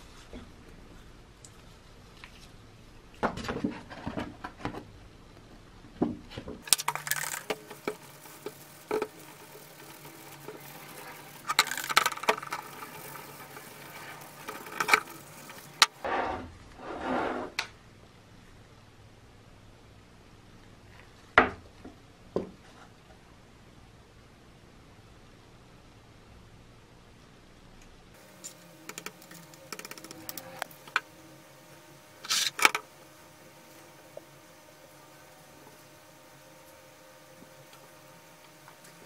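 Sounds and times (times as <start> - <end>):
plastic parts clicking and knocking: 11.4 - 13.7.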